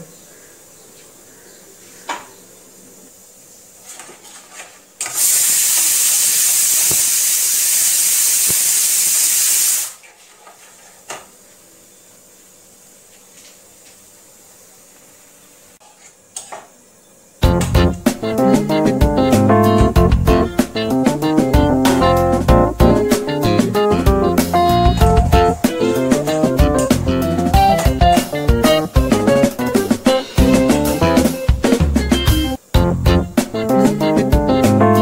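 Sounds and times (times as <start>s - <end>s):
pressure cooker steam hissing: 5.0s - 10.0s.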